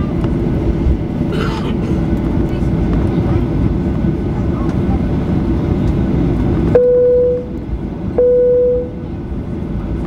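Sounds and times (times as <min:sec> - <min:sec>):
taxiing jet rumble: 0:00.0 - 0:10.0
single-tone cabin chime: 0:06.8 - 0:07.6, 0:08.2 - 0:09.0.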